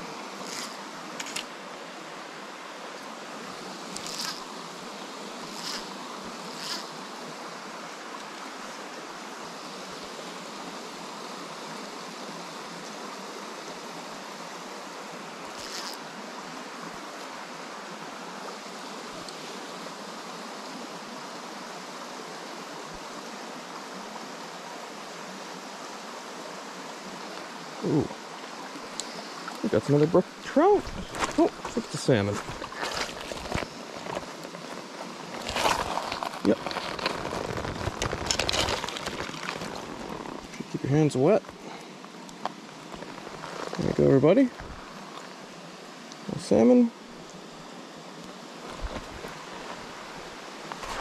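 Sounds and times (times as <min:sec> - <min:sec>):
stream running over rocks: 0:00.0 - 0:51.0.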